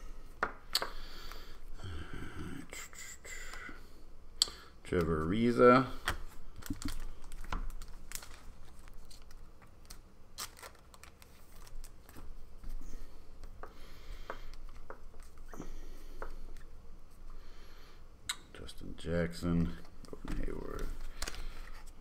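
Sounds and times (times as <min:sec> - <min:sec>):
trading cards clicking and rustling: 0:04.9 - 0:12.8, 0:19.8 - 0:22.0.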